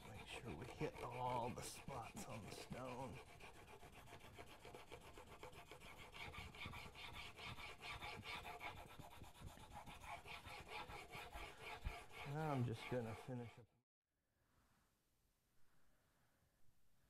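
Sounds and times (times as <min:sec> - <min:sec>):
chisel scraping on sharpening stone: 0:00.0 - 0:08.8, 0:09.5 - 0:13.5.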